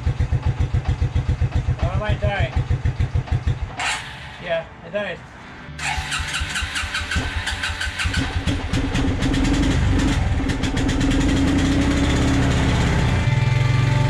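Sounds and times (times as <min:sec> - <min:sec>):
quad bike engine idling: 0:00.0 - 0:04.4, 0:05.8 - 0:14.0
electric starter cranking engine: 0:05.8 - 0:11.8.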